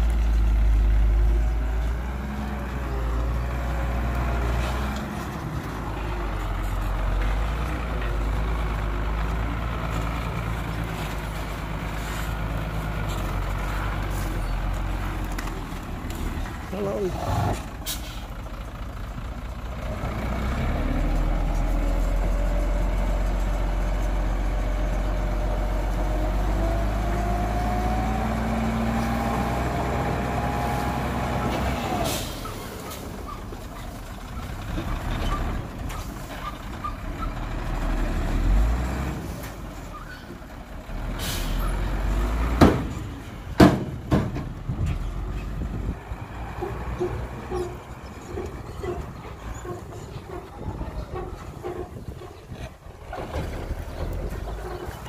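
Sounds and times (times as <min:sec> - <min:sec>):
diesel truck engine running: 0:00.0 - 0:55.0
loud sharp knocks: 0:42.6 - 0:43.0, 0:43.6 - 0:44.5.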